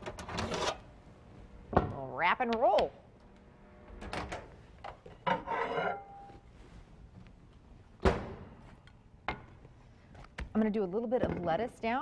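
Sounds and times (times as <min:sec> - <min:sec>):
plate scraping across oven floor: 0:05.3 - 0:06.3.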